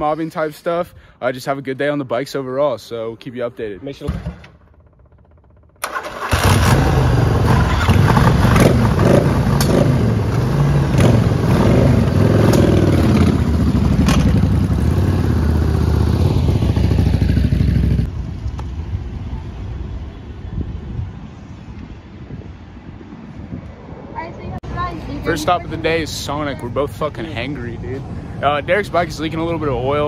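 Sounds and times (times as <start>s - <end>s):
motorcycle engines revving: 5.8s - 18.2s.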